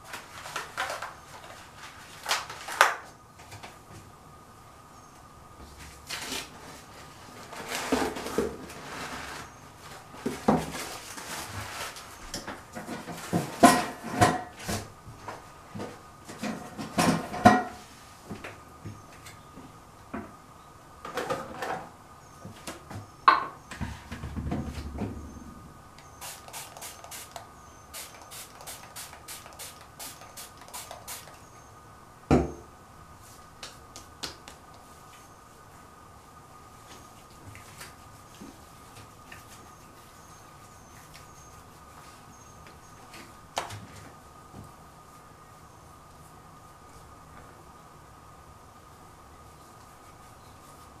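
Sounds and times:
spray bottle spraying: 26.0s - 31.5s.

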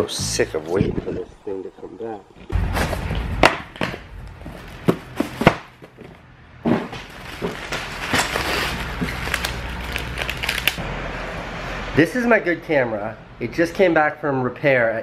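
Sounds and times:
packing paper and plastic rustling: 7.0s - 10.8s.

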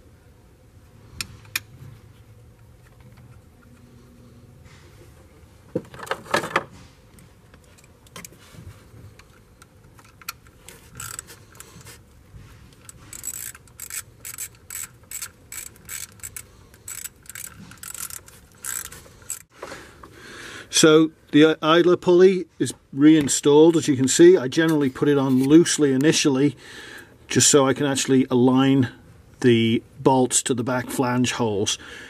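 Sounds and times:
ratchet wrench clicking: 10.2s - 11.7s, 12.8s - 19.5s.

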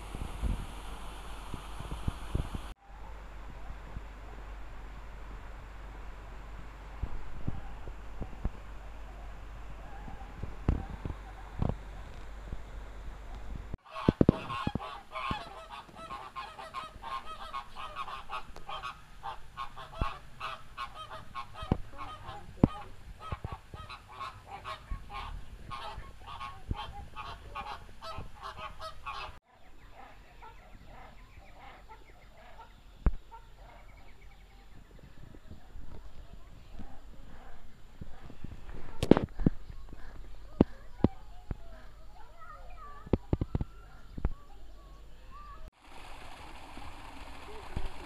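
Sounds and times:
birds honking: 13.8s - 29.4s.

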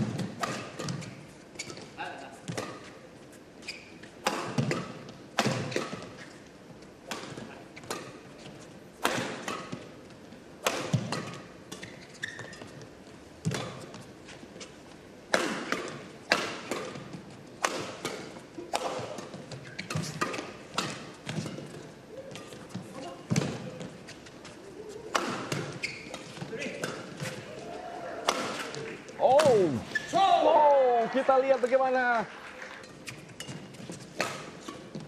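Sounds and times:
rackets hitting shuttlecock: 0.0s - 1.2s, 4.2s - 6.2s, 7.0s - 8.2s, 9.0s - 9.9s, 10.6s - 12.0s, 13.4s - 14.0s, 15.3s - 23.9s, 25.0s - 30.2s, 33.4s - 35.0s.

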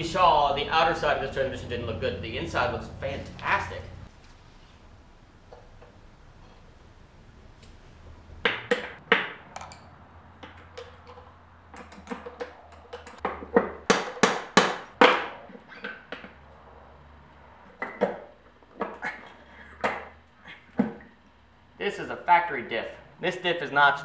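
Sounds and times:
metal parts knocking and clinking: 9.5s - 13.7s.

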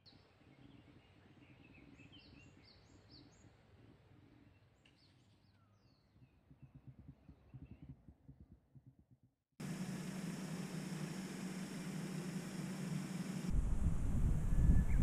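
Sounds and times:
low background rumble: 9.6s - 15.0s.

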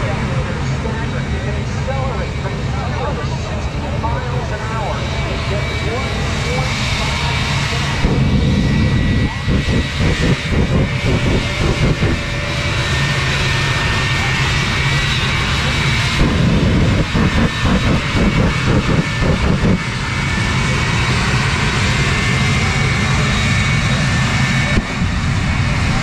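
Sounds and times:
jet engine roaring: 0.0s - 26.0s
low hum: 8.0s - 13.5s, 16.0s - 21.3s.

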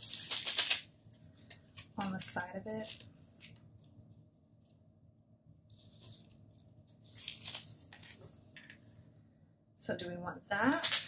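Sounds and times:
paper sticker being peeled: 5.7s - 8.2s.

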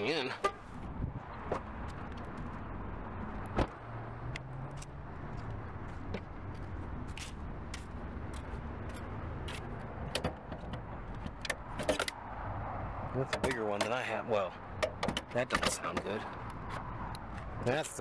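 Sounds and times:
footsteps on pavement: 4.2s - 9.8s.

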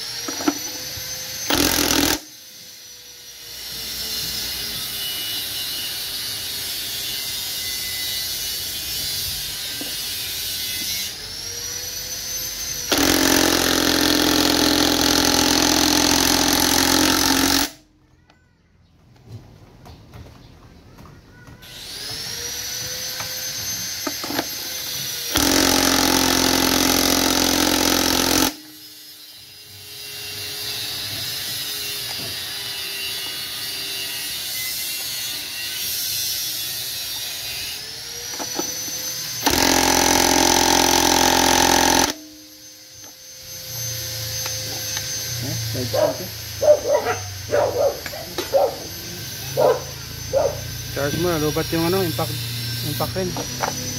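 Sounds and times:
impact wrench hammering: 0.2s - 2.4s, 12.8s - 17.8s, 23.1s - 29.1s, 38.3s - 43.2s, 53.0s - 53.9s.

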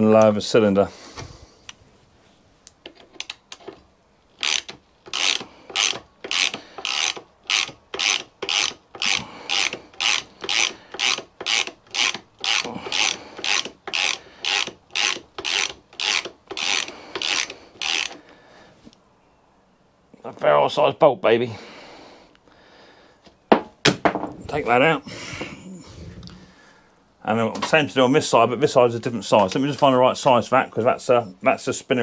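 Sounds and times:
ratchet wrench clicking: 4.4s - 18.2s.

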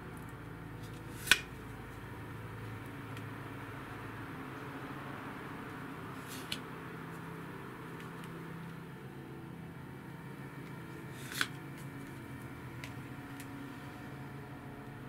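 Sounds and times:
low steady hum: 0.0s - 15.0s
card slap: 1.1s - 1.5s, 11.1s - 11.6s
card swish: 6.2s - 6.6s, 11.1s - 11.6s.

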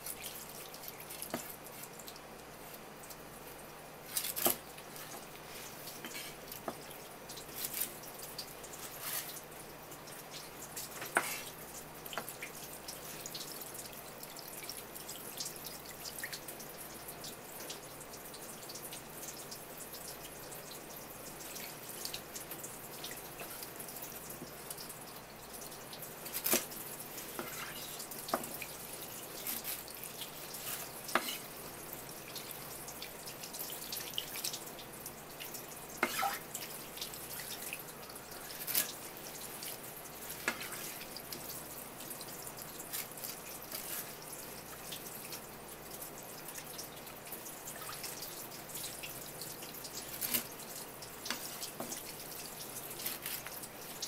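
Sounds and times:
tap water splattering: 35.4s - 39.0s, 39.6s - 41.5s, 49.9s - 53.6s.

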